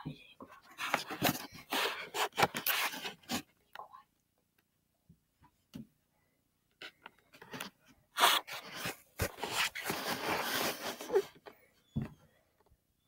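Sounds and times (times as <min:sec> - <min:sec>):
rustling and scraping on microphone: 0:06.8 - 0:11.6.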